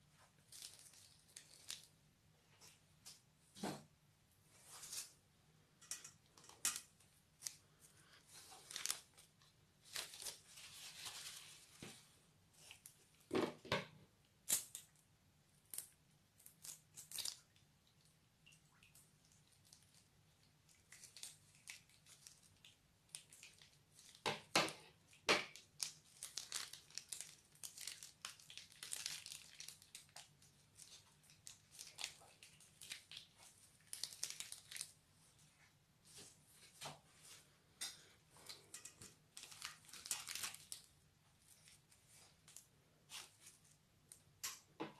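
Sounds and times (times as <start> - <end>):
plastic bag crinkling: 0.4 - 1.9, 8.4 - 11.7, 25.5 - 35.0, 39.3 - 40.9.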